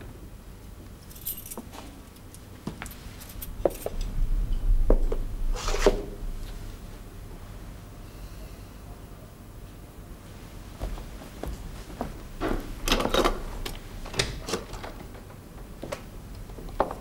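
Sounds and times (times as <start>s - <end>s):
footsteps on carpet: 10.7s - 12.7s.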